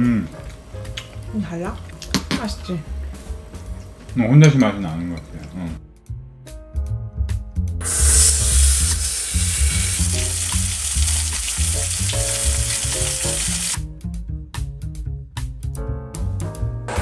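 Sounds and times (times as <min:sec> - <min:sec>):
background music: 0:00.0 - 0:17.0
meat sizzling in oil: 0:07.8 - 0:13.8.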